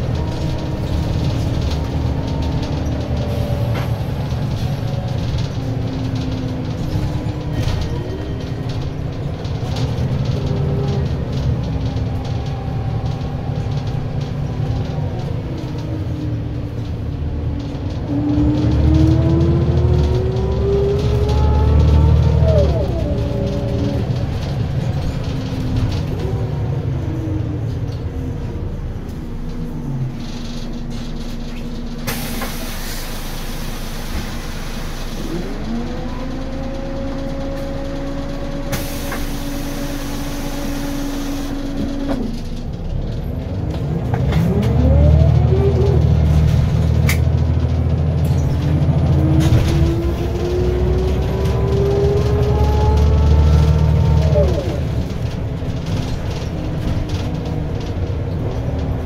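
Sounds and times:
bus engine drone: 0.0s - 59.0s
bus gearbox whine: 29.0s - 59.0s.

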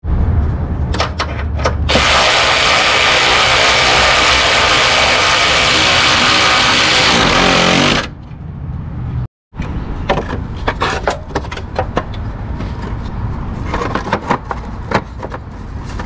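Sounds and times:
power wrench driving a bolt: 1.8s - 8.1s.

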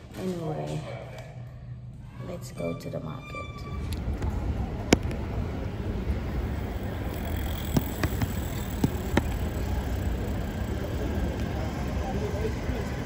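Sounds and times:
road vehicle rumble: 3.6s - 13.0s.

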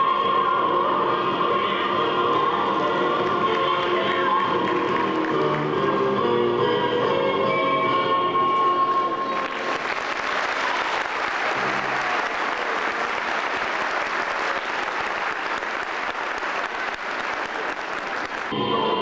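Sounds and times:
music: 0.0s - 19.0s
audience applause: 2.3s - 5.9s, 9.3s - 18.6s.

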